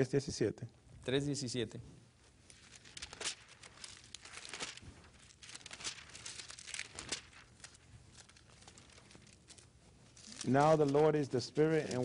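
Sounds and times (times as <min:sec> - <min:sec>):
book pages turning: 0:02.4 - 0:12.0.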